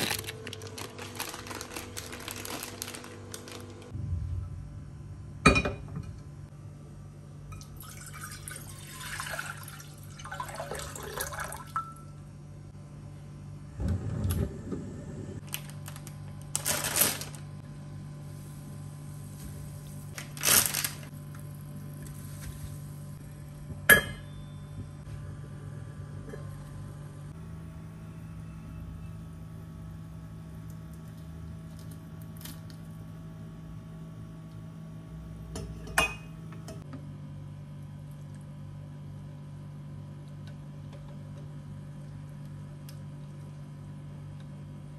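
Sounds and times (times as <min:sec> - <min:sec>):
steady low hum: 0:00.0 - 0:44.9
water pouring into pan: 0:07.8 - 0:11.7.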